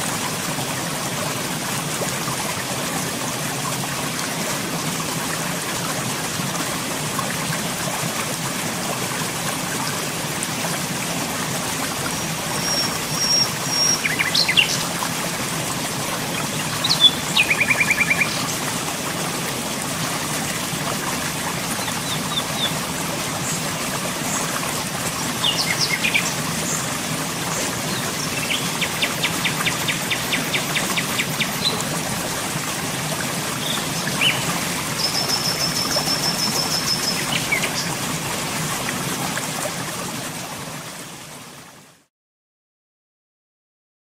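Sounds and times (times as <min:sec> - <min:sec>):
birds chirping and trilling: 0:12.2 - 0:14.8, 0:16.7 - 0:18.5, 0:25.4 - 0:26.8.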